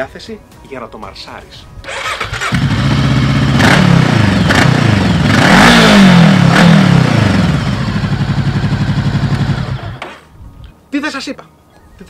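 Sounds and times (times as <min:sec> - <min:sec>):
motorcycle engine idling and revving: 0:01.8 - 0:10.1.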